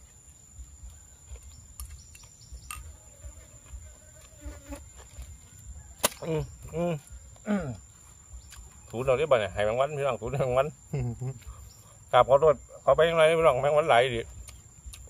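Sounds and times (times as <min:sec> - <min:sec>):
housefly buzzing: 0:02.6 - 0:05.2.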